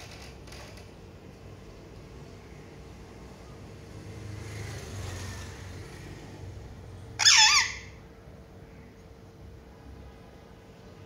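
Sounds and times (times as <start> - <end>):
parakeet squawk: 7.1 - 8.1.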